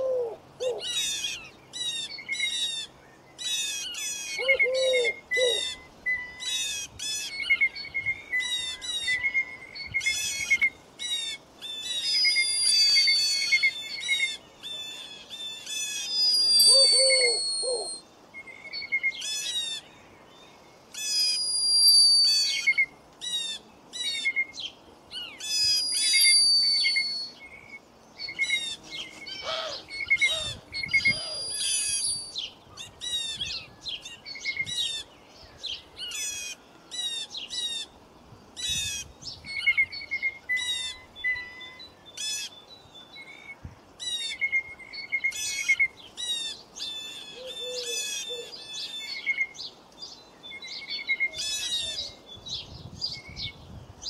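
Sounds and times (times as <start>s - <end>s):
songbirds chirping: 0.0s - 54.0s
long whistled bird notes: 0.7s - 19.9s, 20.9s - 37.9s.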